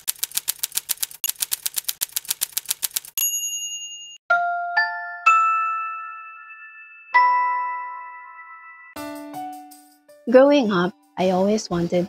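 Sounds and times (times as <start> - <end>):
typewriter keys clacking: 0.0 - 3.2
typewriter bell ding: 2.9 - 4.2
bright chime notes ringing: 3.2 - 9.0.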